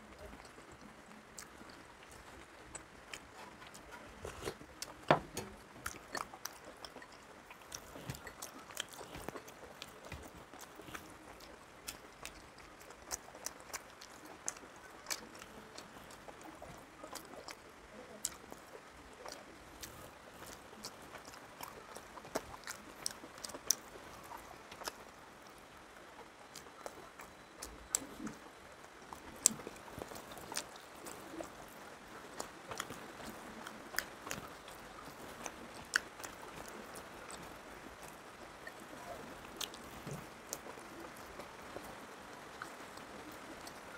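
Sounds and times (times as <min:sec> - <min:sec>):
chewing and mouth sounds: 0:00.0 - 0:43.9.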